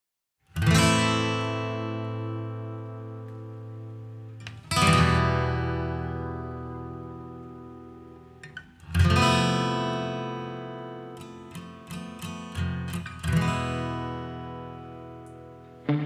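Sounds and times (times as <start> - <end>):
strummed guitar chords: 8.9 - 16.0
plucked guitar notes: 13.3 - 16.0.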